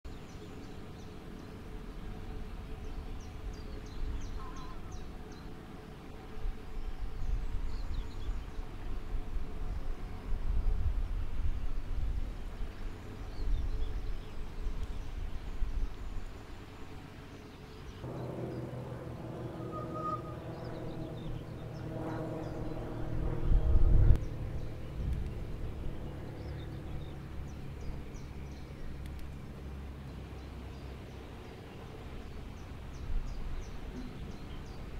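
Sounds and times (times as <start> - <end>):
low engine drone: 0.1 - 34.9
faint bird chirps: 4.2 - 5.4
wind on microphone: 6.3 - 16.4, 19.0 - 29.6
low rumble: 18.0 - 34.9.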